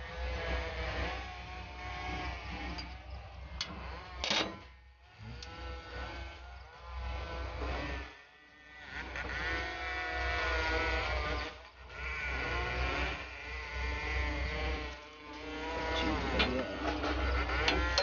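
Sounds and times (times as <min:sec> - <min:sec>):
steady low hum: 0:09.2 - 0:18.0.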